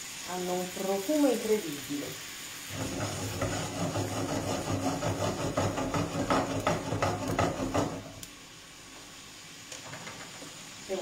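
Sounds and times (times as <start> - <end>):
prawns sizzling in a frying pan: 0.0 - 11.0.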